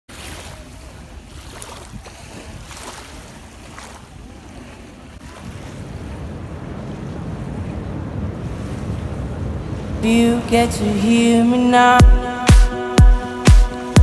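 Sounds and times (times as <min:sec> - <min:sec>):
water splashes: 0:00.1 - 0:11.2
small waves lapping on sand: 0:00.1 - 0:11.8
wind buffeting microphone: 0:00.5 - 0:11.1.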